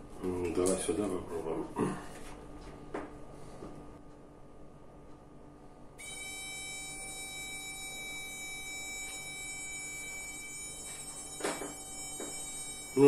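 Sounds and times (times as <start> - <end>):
quadcopter motor whining: 6.0 - 13.0.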